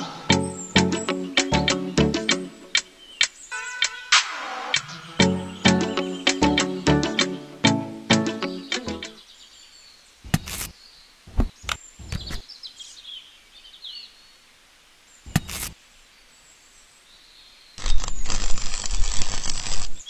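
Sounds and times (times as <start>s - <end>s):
faint bird chirps: 0.0s - 6.8s, 8.5s - 17.8s
music: 0.0s - 9.2s.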